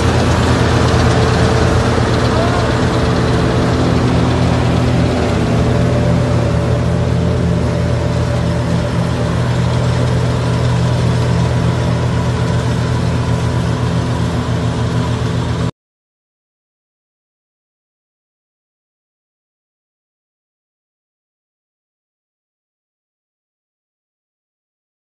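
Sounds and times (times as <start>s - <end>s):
combine harvester engine hum: 0.0s - 15.7s.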